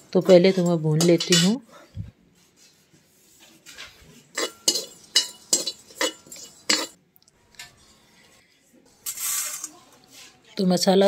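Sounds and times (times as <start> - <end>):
metal spoon scraping metal pan: 0.2 - 1.6, 4.3 - 7.0, 9.0 - 9.8.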